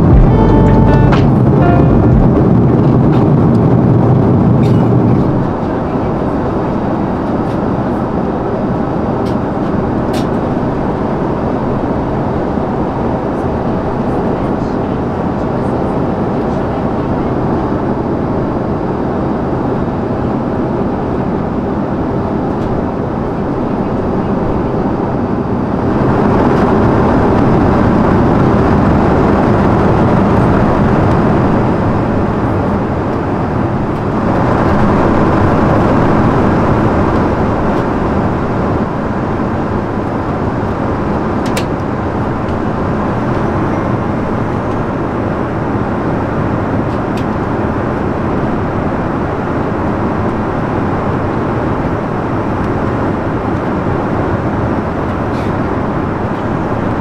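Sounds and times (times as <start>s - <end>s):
airliner cabin engine roar: 0.0s - 57.0s.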